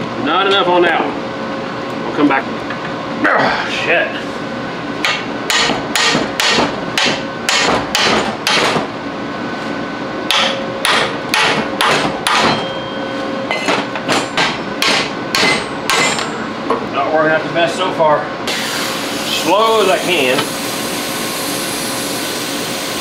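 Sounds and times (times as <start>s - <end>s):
hammer striking a steel wrench: 5.0s - 8.8s, 10.3s - 16.4s.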